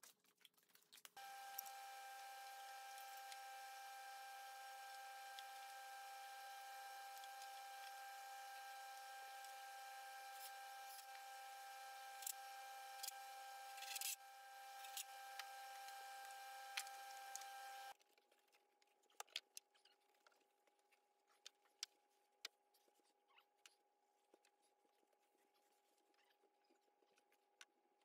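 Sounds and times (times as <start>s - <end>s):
faint steady hum: 1.2s - 18.0s.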